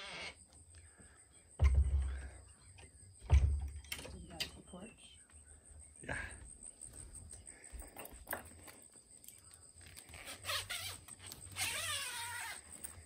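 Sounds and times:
tent zipper rasping: 0.0 - 0.4, 10.0 - 13.0.

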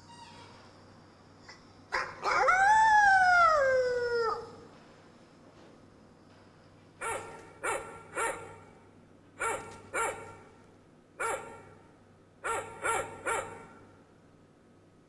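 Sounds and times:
dog barking: 1.9 - 2.5, 7.0 - 8.7, 9.4 - 10.5, 11.2 - 11.8, 12.4 - 13.9.

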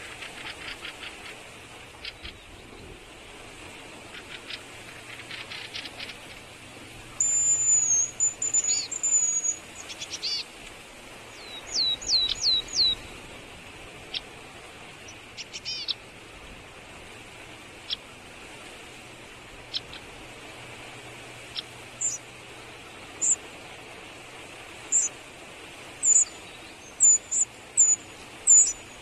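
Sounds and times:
small birds calling: 0.0 - 3.0, 3.8 - 13.3, 13.9 - 16.1, 17.7 - 18.2, 19.5 - 23.8, 24.8 - 25.2, 25.9 - 29.0.

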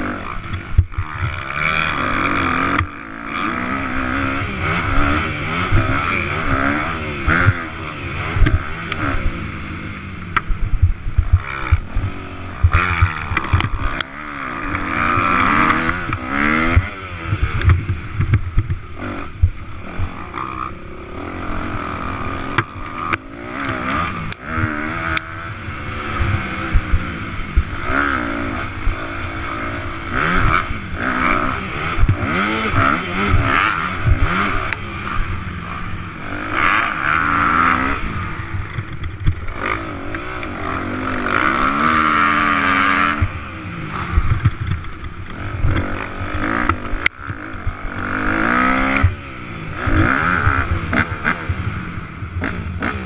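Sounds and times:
motocross bike engine revving: 0.0 - 53.0.

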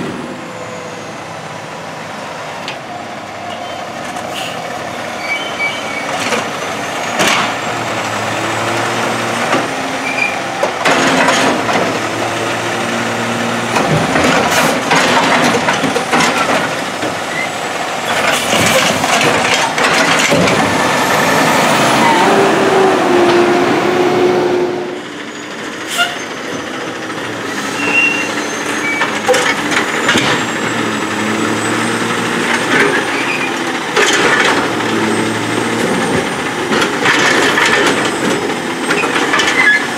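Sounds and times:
air brake hisses: 4.3 - 4.6
garbage truck diesel engine revving: 4.6 - 39.9.

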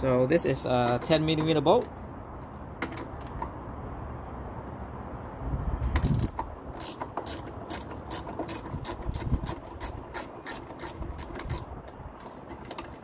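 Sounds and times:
ratchet wrench clicking: 6.0 - 11.7.

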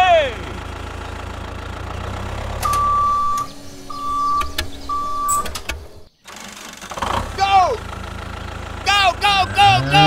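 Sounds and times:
tractor engine rumble: 0.0 - 10.0
sharp clicks: 2.6 - 3.6, 4.2 - 5.9
long electronic beeps: 2.6 - 5.6.

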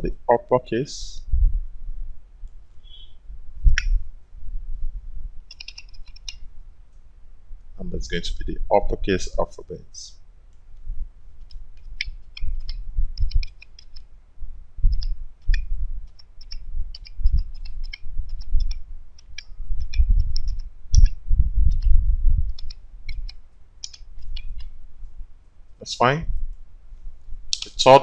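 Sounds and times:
dull low thumps: 1.2 - 2.4, 10.8 - 11.3, 12.5 - 13.5, 14.4 - 23.1
keyboard keys clicking: 5.5 - 6.4, 11.4 - 14.1, 14.9 - 21.1, 22.5 - 24.7.

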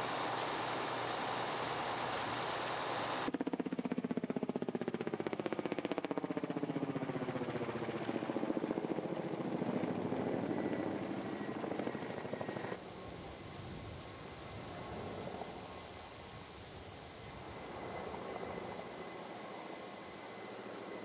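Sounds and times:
broad hiss: 0.0 - 3.3, 12.8 - 21.0
helicopter rotor chopping: 4.9 - 21.0.

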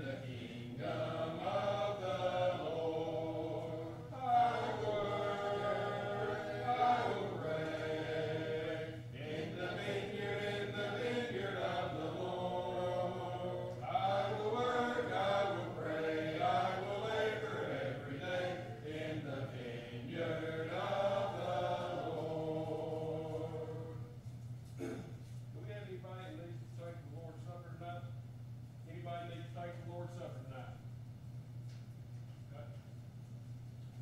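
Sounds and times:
congregation singing a hymn: 0.0 - 24.2.

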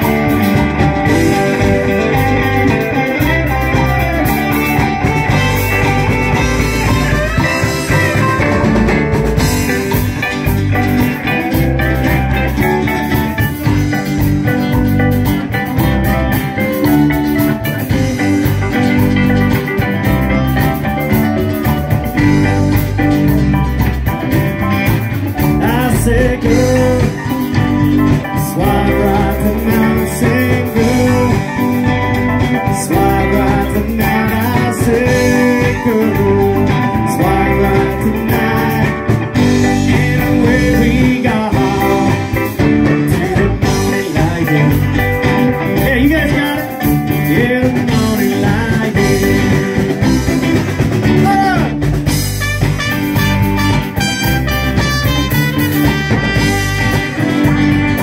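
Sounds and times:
live rock band playing: 0.0 - 58.0.

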